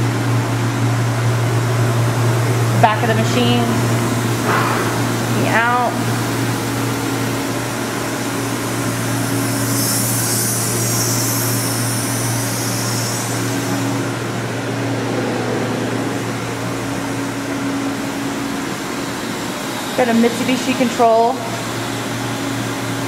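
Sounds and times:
higher steady machine tone: 0:00.0 - 0:23.0
machinery low drone: 0:00.0 - 0:23.0
hiss: 0:07.8 - 0:14.2.

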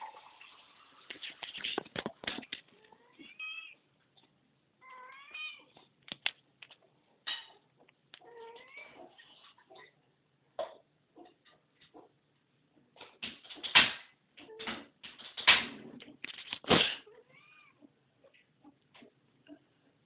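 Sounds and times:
cat meowing: 0:02.9 - 0:03.8, 0:04.8 - 0:05.8, 0:17.1 - 0:17.9.

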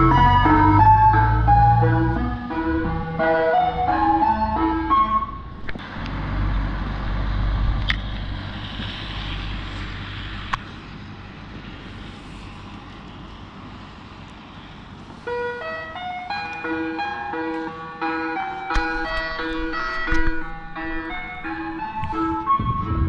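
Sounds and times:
ice cream van chime tune: 0:00.0 - 0:05.5, 0:15.3 - 0:23.0
vehicle passing on wet road: 0:00.0 - 0:15.3.

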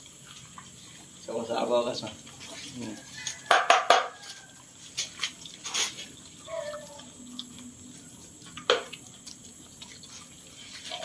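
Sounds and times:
dogs chewing and slurping: 0:00.0 - 0:11.0
clicks and knocks of bowls: 0:02.4 - 0:04.4, 0:08.6 - 0:09.0.

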